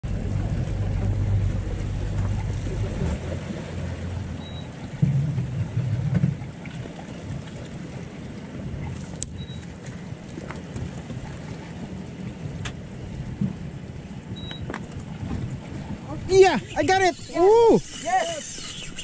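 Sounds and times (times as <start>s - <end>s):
outboard motor running: 0.0s - 19.0s
water rushing past hull: 0.0s - 19.0s
wind on microphone: 10.7s - 19.0s.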